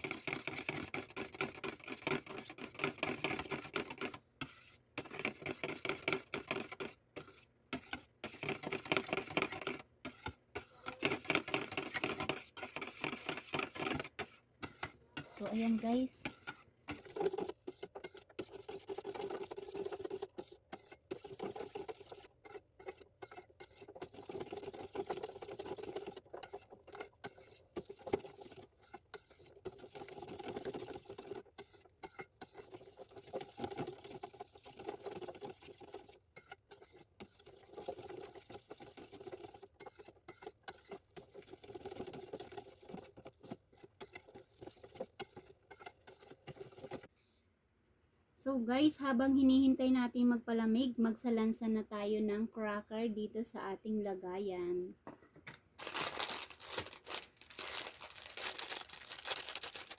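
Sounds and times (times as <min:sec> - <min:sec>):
metal spoon scraping a pot: 0:00.0 - 0:47.1.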